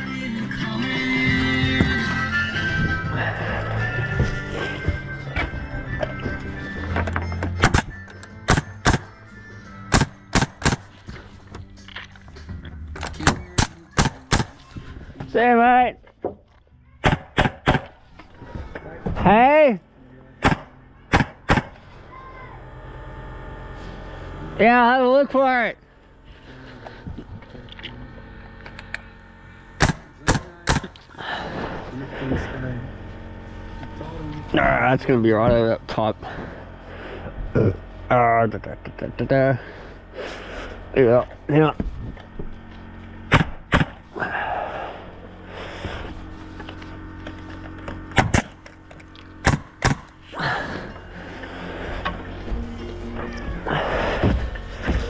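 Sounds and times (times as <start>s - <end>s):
hammer striking nails into timber: 9.9s - 10.9s, 17.0s - 17.9s, 49.4s - 50.1s.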